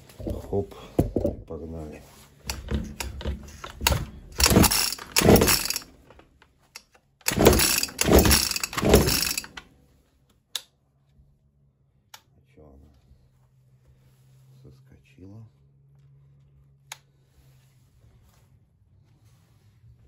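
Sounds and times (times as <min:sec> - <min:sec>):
recoil starter rope pulls: 0:02.4 - 0:09.7.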